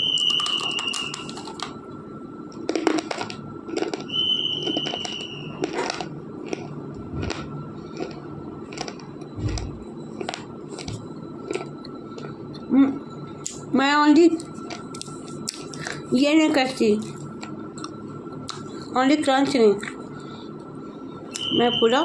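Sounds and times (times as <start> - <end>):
high steady whistle: 0.0 - 2.5, 4.0 - 5.8, 20.2 - 22.0
crunchy chewing close to microphone: 2.6 - 12.6.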